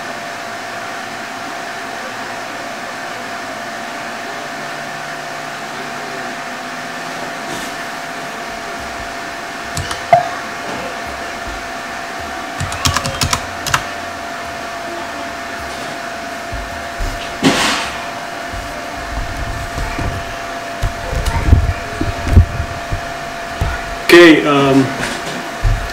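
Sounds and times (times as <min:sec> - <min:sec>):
computer fans whirring: 0:00.0 - 0:25.9
keyboard clicks: 0:09.7 - 0:10.3, 0:12.6 - 0:13.9.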